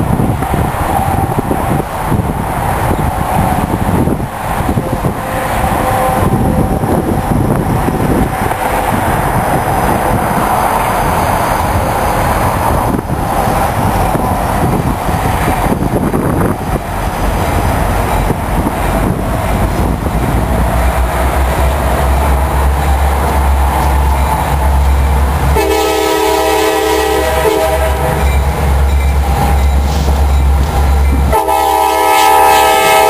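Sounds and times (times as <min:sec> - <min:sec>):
diesel locomotives rumbling: 0:00.0 - 0:33.0.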